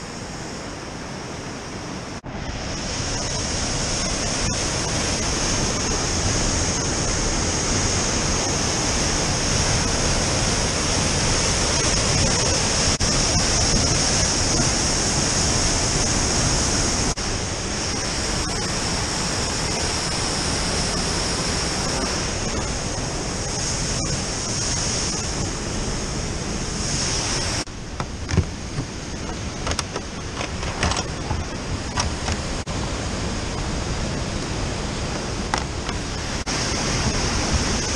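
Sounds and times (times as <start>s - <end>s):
waterfall rushing: 0.0s - 37.9s
sharp knocks: 28.0s - 32.4s.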